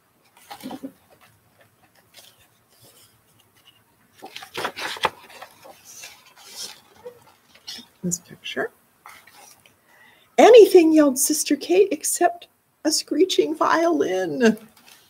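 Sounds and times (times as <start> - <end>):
book pages turning: 0.2 - 8.0, 9.0 - 9.8
paper rustles and flaps: 0.2 - 8.0.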